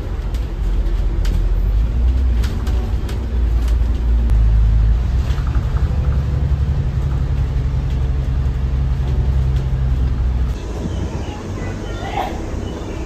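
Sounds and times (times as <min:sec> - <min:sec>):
bus engine drone: 0:00.0 - 0:13.0.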